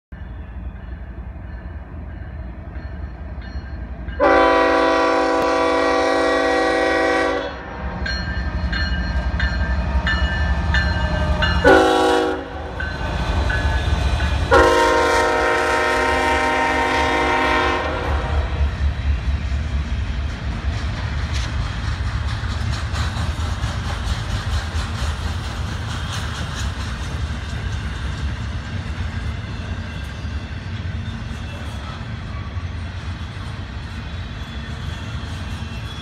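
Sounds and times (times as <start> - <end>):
train rumbling: 0.1 - 36.0
locomotive air horn blasts: 4.2 - 7.7, 11.6 - 12.8, 14.5 - 18.6.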